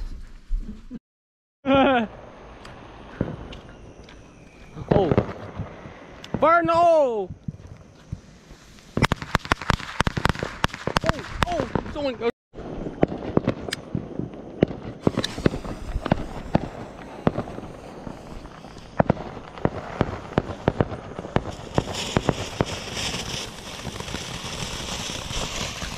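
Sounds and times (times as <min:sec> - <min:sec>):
fireworks popping and crackling: 0:02.6 - 0:25.9
fountain firework hissing: 0:15.0 - 0:25.9.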